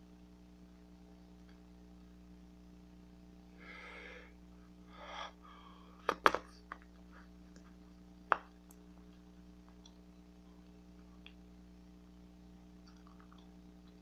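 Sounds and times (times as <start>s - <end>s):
breathy puffs: 3.6s - 6.0s.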